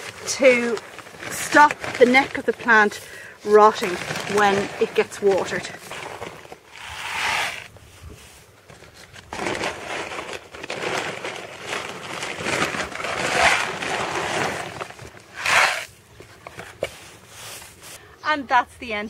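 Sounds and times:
plastic bag rustling: 0.0 - 18.0
grit rattling and crunching: 8.7 - 15.9.

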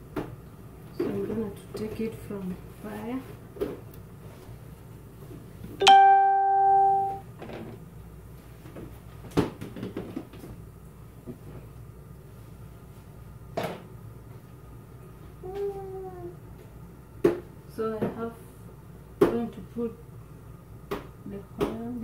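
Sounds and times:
pot ringing note: 5.8 - 7.2.

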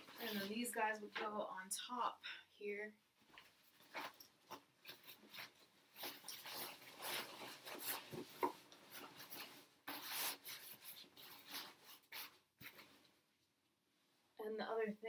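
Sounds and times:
nylon fabric rustling: 0.0 - 1.4, 3.1 - 13.2.

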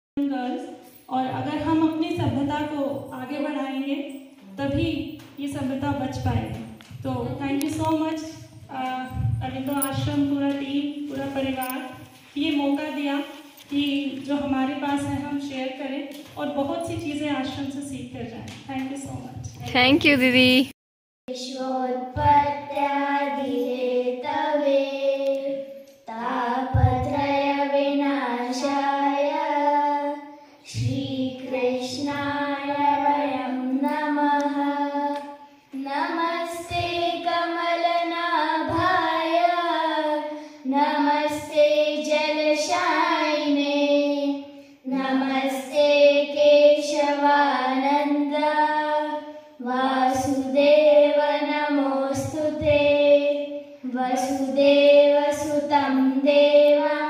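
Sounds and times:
children singing a hymn: 21.5 - 57.0.

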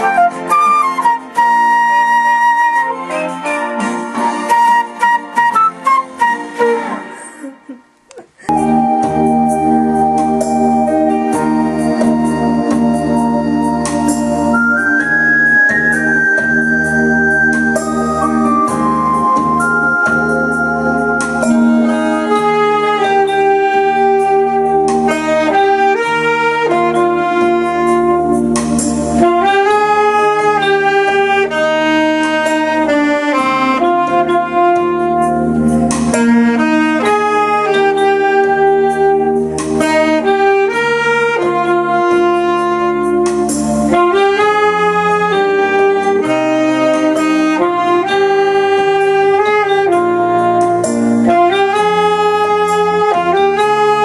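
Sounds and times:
saxophone slow melody: 0.0 - 54.0
sustained chordal backing: 8.5 - 25.1.

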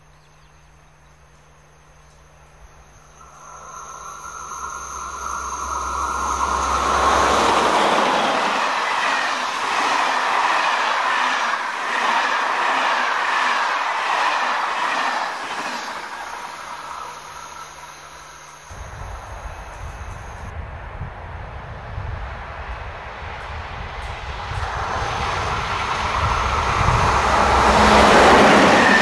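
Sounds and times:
locomotive whine and rumble: 2.4 - 11.9, 15.9 - 29.0
train wheels clicking over rail joints: 3.2 - 17.4.

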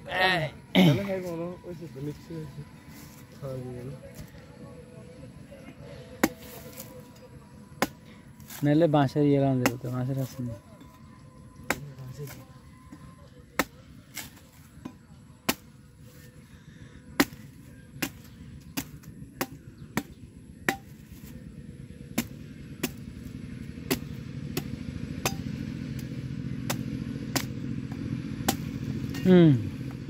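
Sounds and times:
low hum: 0.0 - 30.0
machete chopping coconut husk: 6.2 - 8.8, 9.6 - 10.4, 11.6 - 12.5, 13.5 - 16.2, 17.1 - 30.0.

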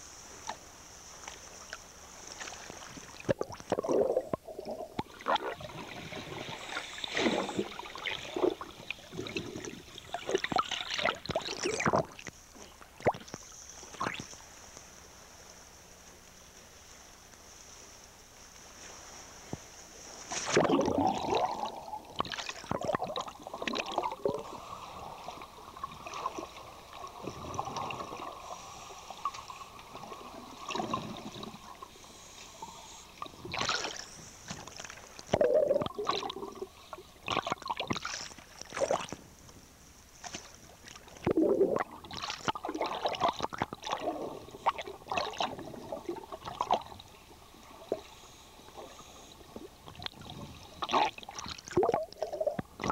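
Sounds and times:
water sloshing and splashing: 0.4 - 14.6, 18.6 - 32.0, 32.9 - 39.4, 40.1 - 52.9
muffled underwater gurgling: 3.1 - 13.4, 20.5 - 34.2, 35.3 - 38.1, 41.2 - 52.9.

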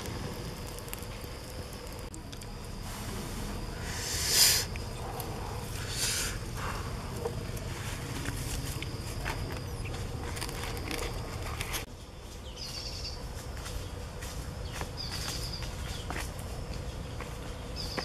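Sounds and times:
clicks and rustles of handling: 7.2 - 11.9.

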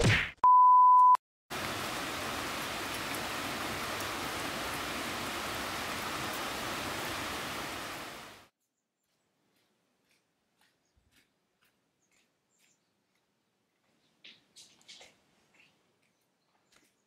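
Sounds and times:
steady rain falling: 1.5 - 8.5.

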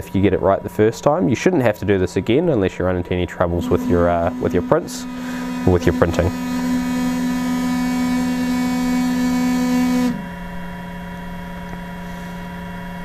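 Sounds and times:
low steady hum: 3.4 - 12.3
stepper motors whining: 3.6 - 10.4.

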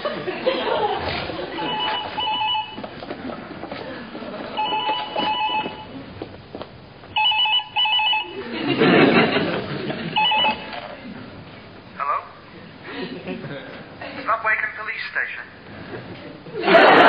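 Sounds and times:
telephone ringing: 1.6 - 2.9, 4.5 - 6.0, 7.2 - 8.4, 10.2 - 10.8.

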